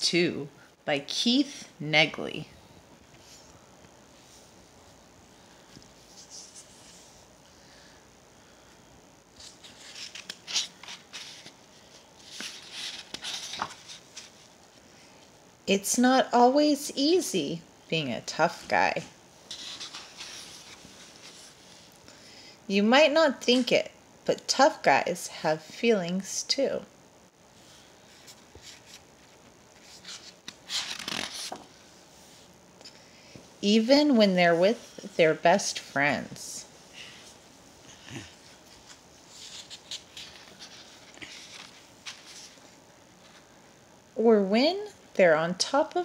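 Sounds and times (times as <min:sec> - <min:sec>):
book pages turning: 0:09.3 - 0:14.8, 0:19.5 - 0:21.9, 0:28.0 - 0:31.9, 0:38.7 - 0:43.4
page swishing: 0:29.8 - 0:31.7.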